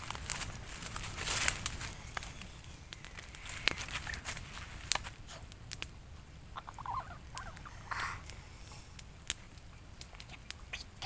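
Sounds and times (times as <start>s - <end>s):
plastic bag rustling: 0.0s - 2.6s, 3.2s - 5.4s.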